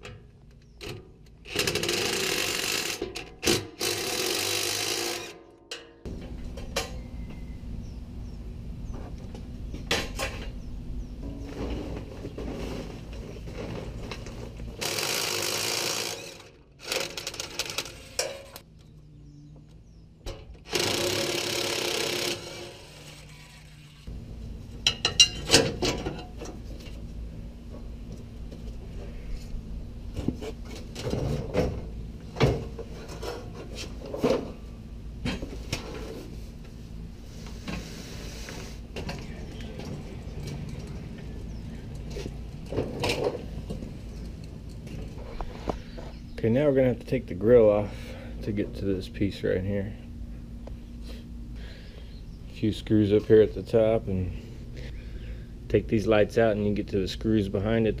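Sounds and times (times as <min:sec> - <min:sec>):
power tool spinning bolts: 0:01.4 - 0:05.5, 0:14.8 - 0:18.6, 0:20.6 - 0:24.1
metal clanks and knocks: 0:11.2 - 0:14.6, 0:24.8 - 0:27.0, 0:30.2 - 0:34.6.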